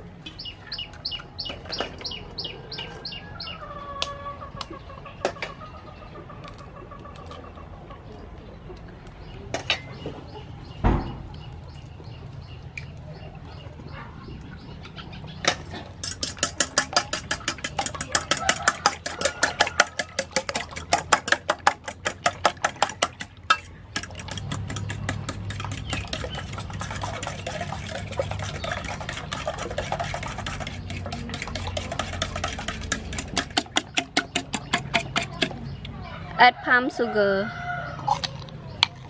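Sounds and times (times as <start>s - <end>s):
fork beating eggs in metal pot: 15.4s - 35.8s.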